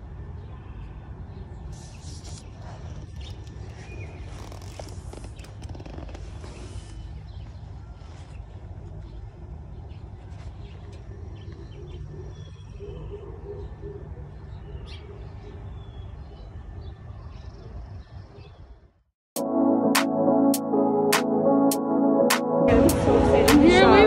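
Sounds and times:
small birds chirping: 0:00.4 - 0:18.9.

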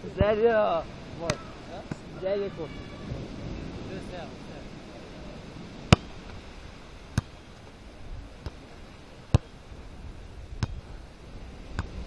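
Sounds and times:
surf: 0:00.0 - 0:12.0
wind: 0:00.0 - 0:12.0
volleyball being struck: 0:05.9 - 0:06.2, 0:07.2 - 0:07.4.

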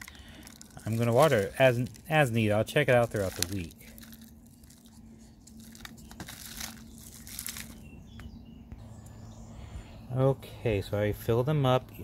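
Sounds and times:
soil poured into plastic tray: 0:00.0 - 0:04.1.

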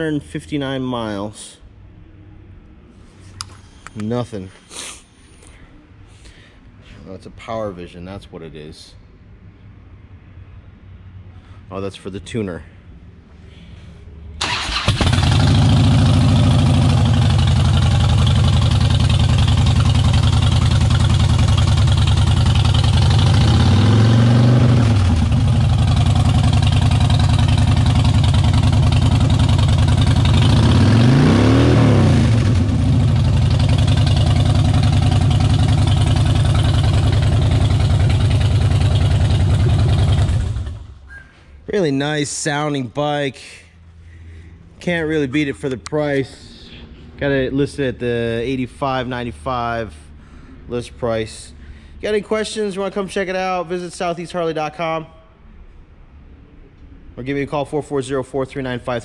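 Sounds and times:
motorcycle engine cranking: 0:14.4 - 0:16.2
motorcycle engine idling: 0:14.4 - 0:23.7, 0:24.8 - 0:30.8, 0:32.4 - 0:41.0
motorcycle engine revving: 0:14.4 - 0:41.0.

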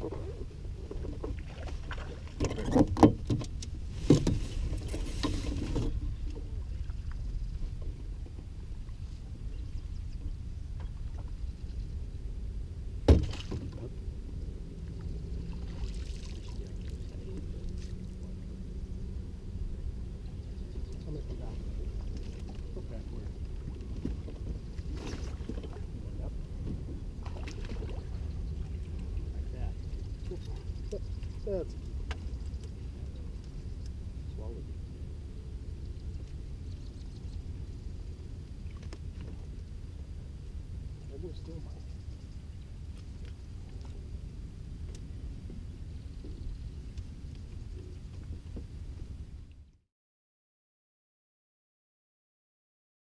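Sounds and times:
knocks and clatter on boat: 0:00.0 - 0:08.6, 0:13.0 - 0:14.0, 0:20.5 - 0:33.2, 0:44.8 - 0:49.1
wind rumble on microphone: 0:00.0 - 0:49.8
water splashing: 0:15.4 - 0:18.2, 0:27.2 - 0:29.3.

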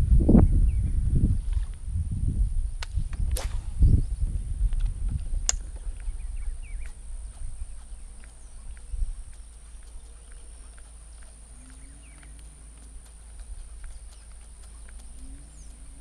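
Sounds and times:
wind buffeting microphone: 0:00.0 - 0:16.0
light clicks: 0:06.8 - 0:16.0.

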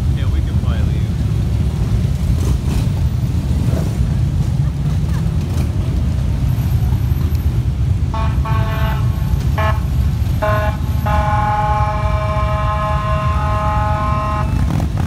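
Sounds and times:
motorcycle engines rumbling: 0:00.0 - 0:15.0
vehicle horn honking: 0:08.1 - 0:14.9.

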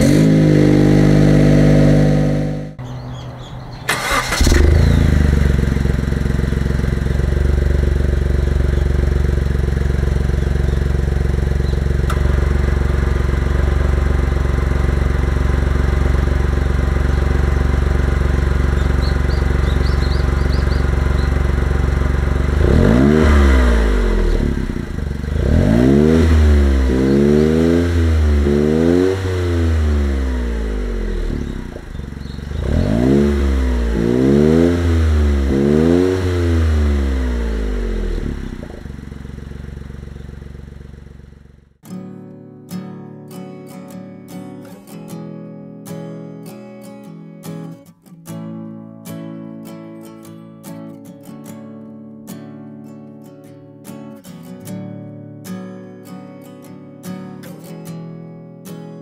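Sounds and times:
engine revving: 0:00.0 - 0:41.7
car engine idling: 0:00.0 - 0:41.8.

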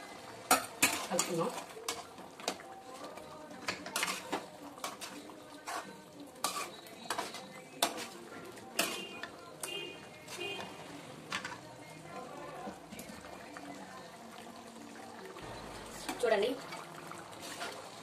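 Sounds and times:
ladle scraping a metal pan: 0:03.7 - 0:10.8, 0:16.0 - 0:18.0.

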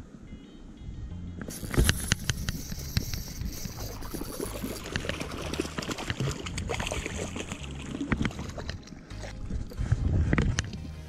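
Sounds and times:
wind rumbling on microphone: 0:00.8 - 0:11.0
fish splashing in water: 0:01.6 - 0:09.0.

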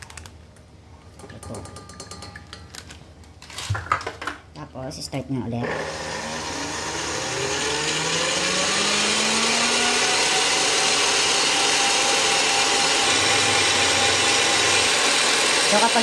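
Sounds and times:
stand mixer whirring: 0:05.7 - 0:16.0.

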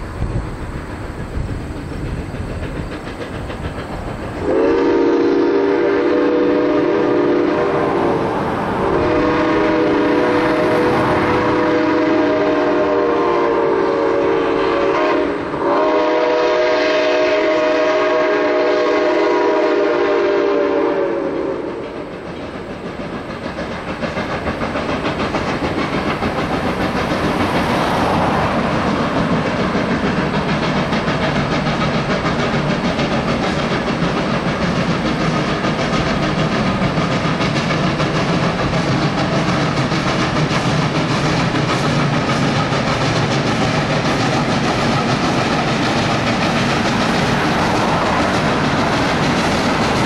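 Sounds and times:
train running on rails: 0:00.0 - 0:50.0
steam locomotive chime whistle: 0:04.4 - 0:22.3.

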